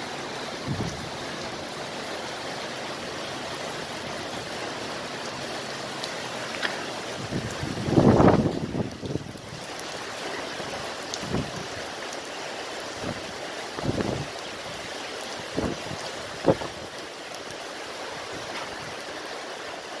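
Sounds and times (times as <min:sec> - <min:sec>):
heavy rain falling: 0:00.0 - 0:20.0
wind buffeting microphone: 0:00.5 - 0:01.3, 0:07.1 - 0:09.7, 0:11.2 - 0:11.8, 0:13.0 - 0:14.8, 0:15.5 - 0:16.9.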